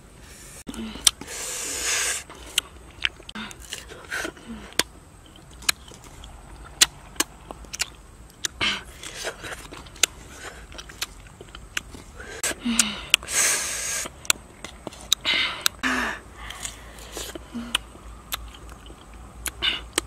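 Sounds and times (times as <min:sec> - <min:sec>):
sharp breath: 0:00.2 - 0:02.3, 0:12.2 - 0:14.1
crisp bites and chewing: 0:04.7 - 0:12.1, 0:16.4 - 0:20.0.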